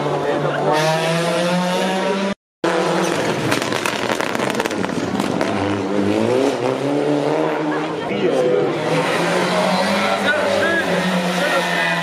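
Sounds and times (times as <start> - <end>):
rally car engine accelerating: 0.0 - 12.0
engine crackling pops: 3.1 - 5.6.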